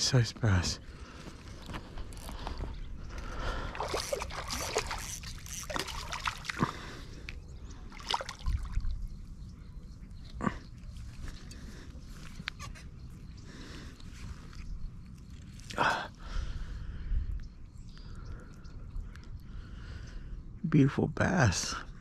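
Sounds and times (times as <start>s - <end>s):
water splashing and dripping: 3.7s - 6.7s, 7.9s - 8.9s.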